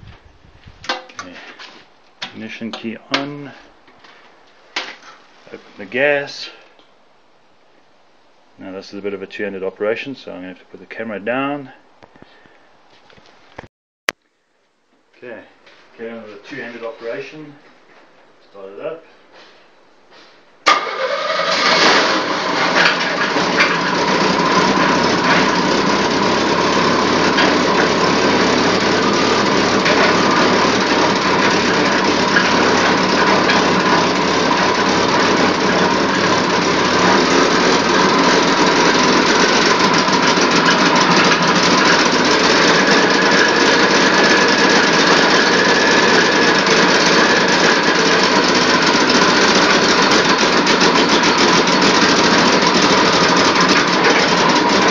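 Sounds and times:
car engine running: 21.5 - 54.9.

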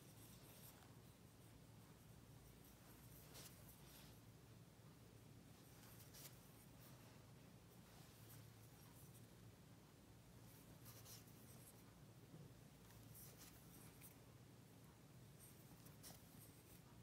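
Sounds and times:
paintbrush strokes on porcelain: 0.0 - 4.4, 10.4 - 12.0
low steady hum: 0.0 - 17.0.

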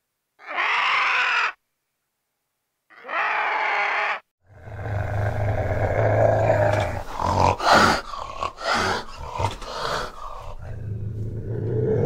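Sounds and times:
harsh animal call: 0.4 - 1.6, 2.9 - 12.0
wild cat growling: 3.2 - 12.0
cat hissing and spitting: 5.2 - 10.8.

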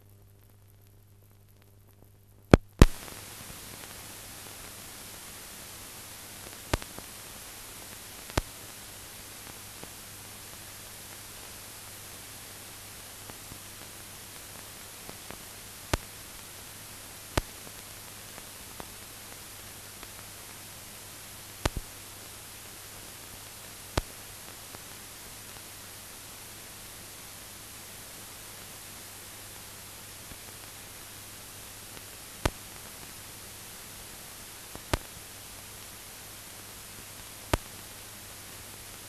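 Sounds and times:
faint low hum: 0.0 - 39.0
film soundtrack hiss: 0.0 - 39.0
loud clicks: 2.5 - 3.1
sharp pops: 2.5 - 4.0.

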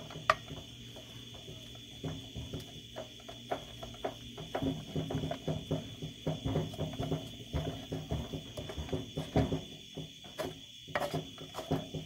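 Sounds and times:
wooden spoon scraping skillet: 10.3 - 12.0.

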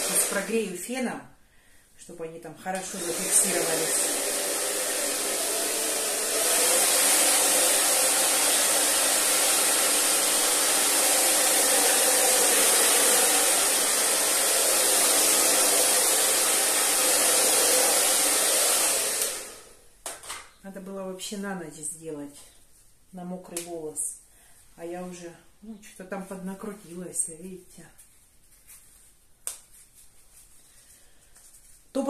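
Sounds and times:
hair dryer running: 0.0 - 0.8, 2.7 - 19.9.

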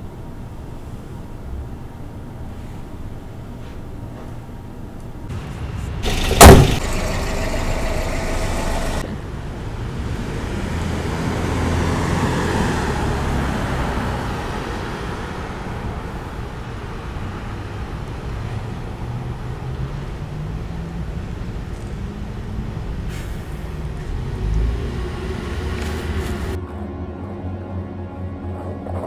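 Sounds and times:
motor vehicle passing: 5.3 - 26.6
loud thump: 5.4 - 7.2.

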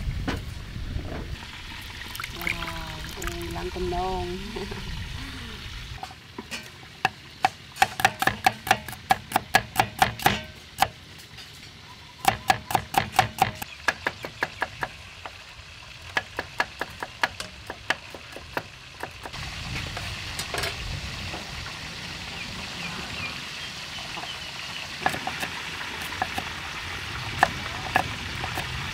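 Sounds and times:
cleaver chopping on wooden board: 7.4 - 10.9, 12.2 - 14.9.

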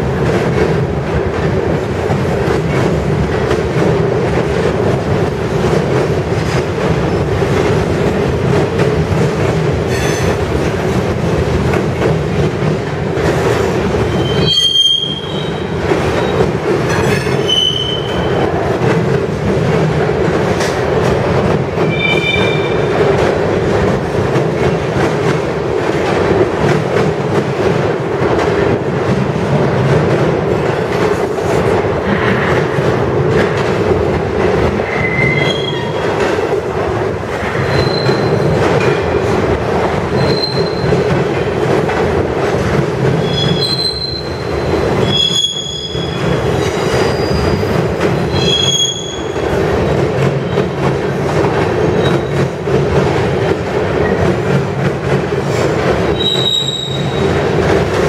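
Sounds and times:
steel wheels rumbling on rail: 0.0 - 58.0
high-pitched wheel squeals: 14.1 - 15.6, 40.2 - 40.9.

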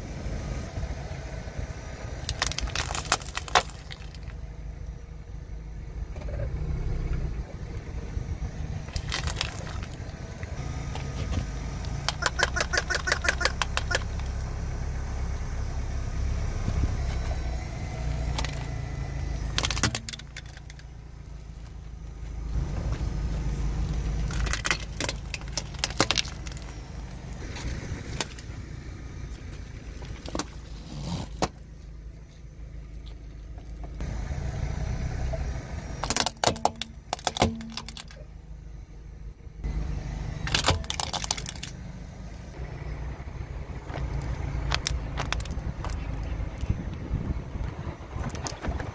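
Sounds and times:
car rumbling: 0.0 - 48.9
tyre crushing objects: 2.2 - 4.4, 8.8 - 10.2, 19.4 - 20.8, 36.0 - 38.2.

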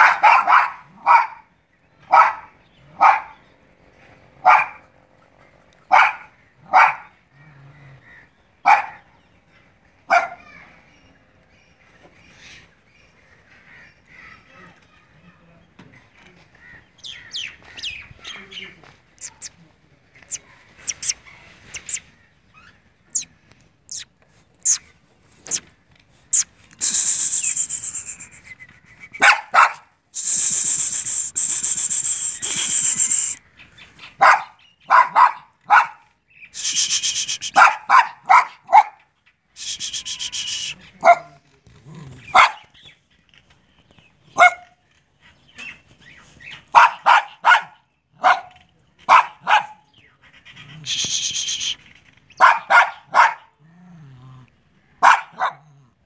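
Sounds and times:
dog barking: 0.0 - 3.4, 4.4 - 4.9, 5.9 - 7.2, 8.6 - 9.1, 10.1 - 10.5, 29.2 - 29.9, 34.2 - 36.1, 37.5 - 39.0, 41.0 - 41.4, 42.3 - 42.7, 44.4 - 44.8, 46.7 - 49.9, 52.4 - 53.6, 55.0 - 55.8.

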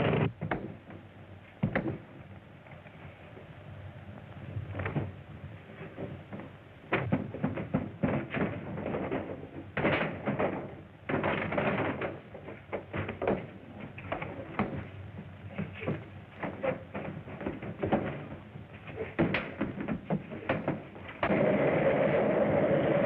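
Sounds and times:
film soundtrack hiss: 0.0 - 23.0
fistfight thuds and smacks: 1.6 - 2.0.

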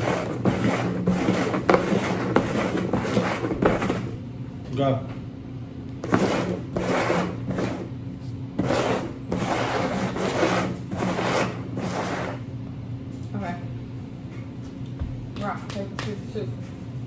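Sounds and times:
plastic bowls scraping on wood: 0.0 - 4.2, 6.0 - 7.9, 8.6 - 12.5.

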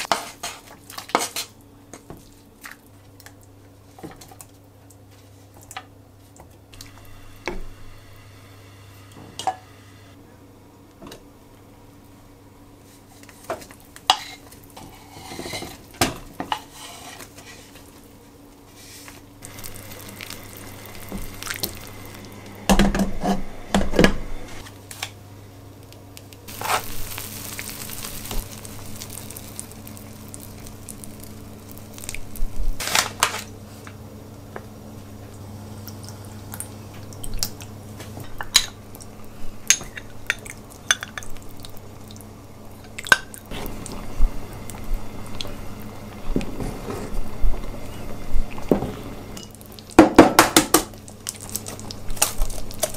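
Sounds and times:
steady low hum: 6.7 - 13.0, 19.3 - 50.0.

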